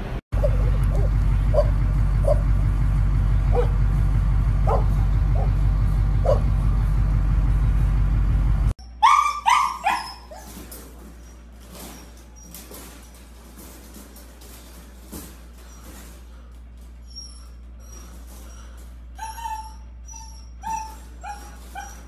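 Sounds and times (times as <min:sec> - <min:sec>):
steady low rumble: 0:00.0 - 0:08.8
puppy yelping: 0:00.4 - 0:02.4, 0:06.2 - 0:06.4, 0:08.8 - 0:12.8, 0:17.0 - 0:22.0
dog barking in distance: 0:03.5 - 0:03.8, 0:04.6 - 0:05.6, 0:06.2 - 0:06.5.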